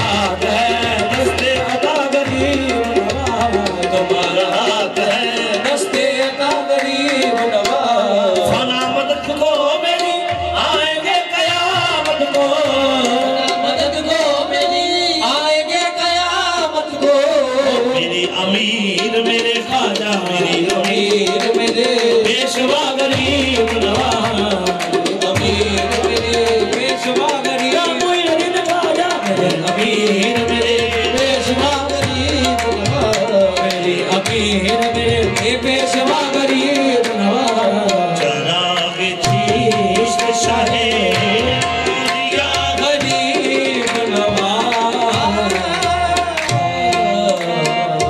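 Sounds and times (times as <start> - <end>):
harmonium notes: 0.0 - 48.0
men singing: 0.0 - 48.0
tabla drumming: 0.0 - 48.0.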